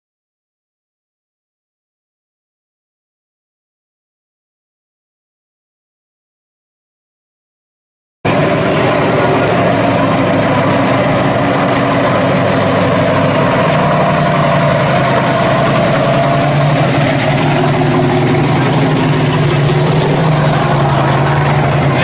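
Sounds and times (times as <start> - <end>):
loud car engine running: 8.3 - 22.0.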